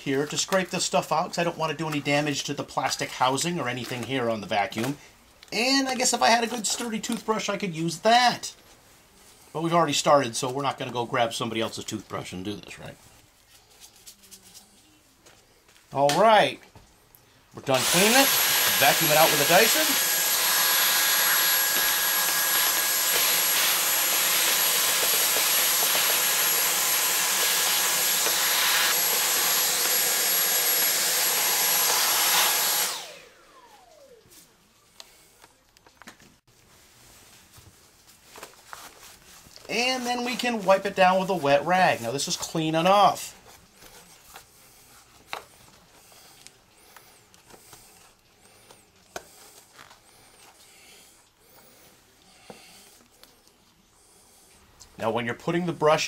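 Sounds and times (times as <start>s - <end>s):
vacuum cleaner running: 17.6s - 34.5s
vacuum motor whine spinning down: 17.8s - 34.5s
wet rag wiping plastic: 36.5s - 50.6s.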